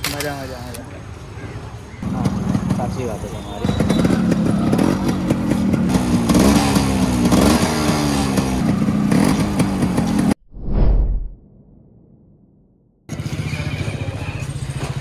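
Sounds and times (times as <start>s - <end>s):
motorcycle engine revving: 2.0s - 10.4s.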